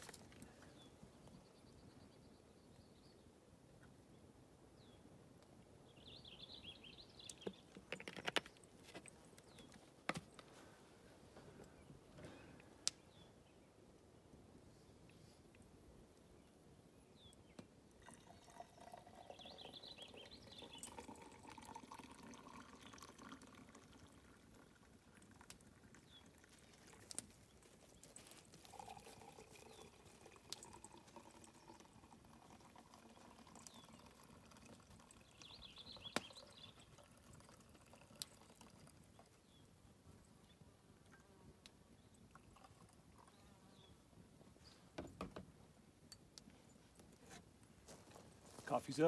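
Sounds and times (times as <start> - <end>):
coffee being poured: 17.9 - 39.6, 42.0 - 43.4.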